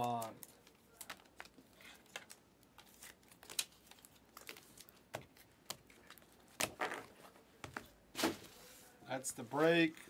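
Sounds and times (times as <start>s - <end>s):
trading cards being handled: 0.0s - 10.0s.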